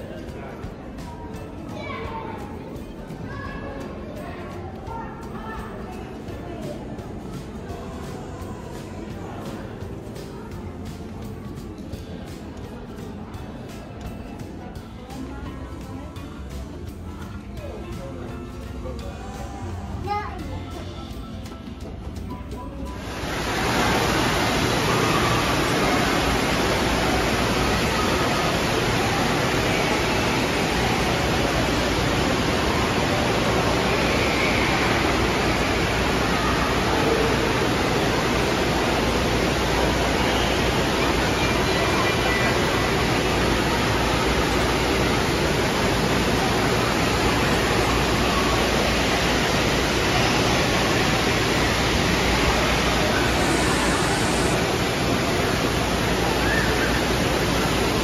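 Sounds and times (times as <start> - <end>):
faint voices: 0.0 - 58.0
splashing and falling water: 22.9 - 58.0.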